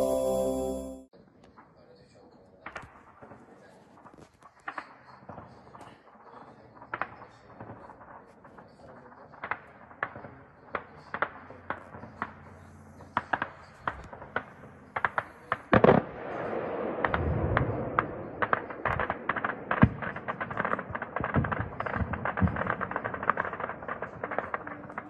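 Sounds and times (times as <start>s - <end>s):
small-arms gunfire: 13.2s - 25.0s.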